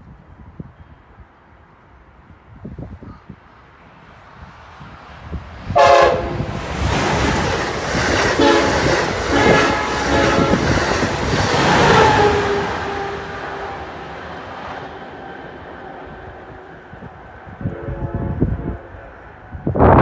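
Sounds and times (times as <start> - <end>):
train wheels roaring on rail: 1.5 - 20.0
train horn blasts: 5.8 - 6.6, 8.4 - 14.2, 17.6 - 19.4.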